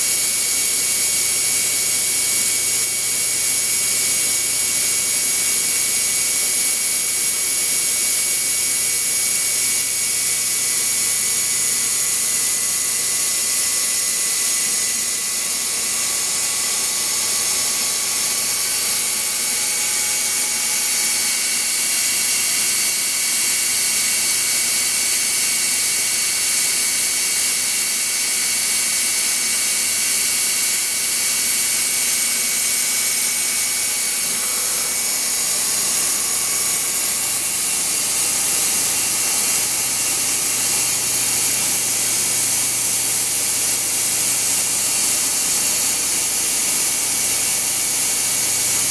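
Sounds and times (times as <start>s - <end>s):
lathe whining: 32.2s - 45.4s.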